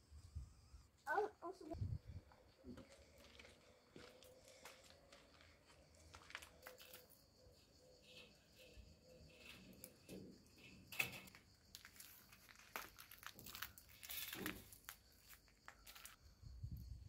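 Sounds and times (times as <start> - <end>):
leaves and twigs rustling: 11.6 - 16.2.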